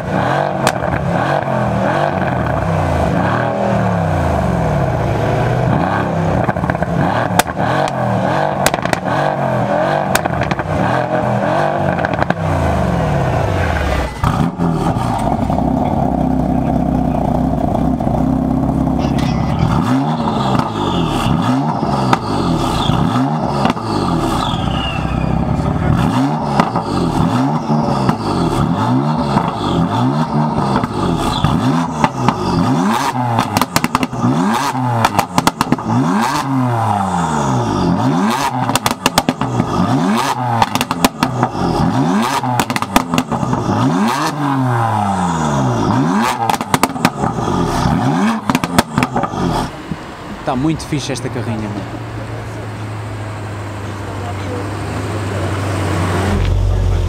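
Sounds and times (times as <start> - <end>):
car engine revving: 0.0 - 57.0
exhaust pops and crackles: 0.6 - 1.2, 6.3 - 9.2, 10.0 - 10.8, 11.9 - 12.5, 14.2 - 34.3, 35.0 - 36.5, 38.5 - 39.9, 40.5 - 43.8, 46.2 - 51.5
engine revving in quick blips: 18.4 - 49.7, 54.5 - 57.0.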